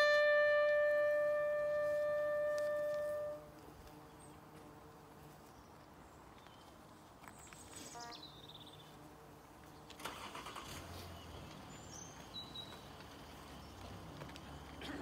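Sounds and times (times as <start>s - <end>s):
bird chirps: 7.3s - 8.9s, 10.5s - 15.0s.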